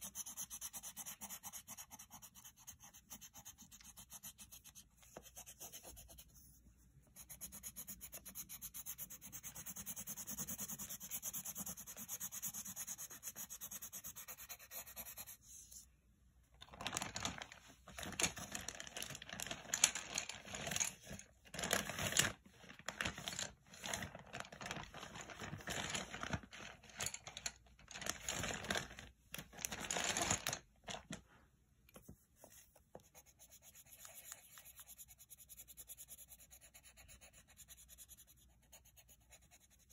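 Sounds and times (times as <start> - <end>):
pencil rubbing on paper: 0.0 - 15.8, 32.3 - 39.9.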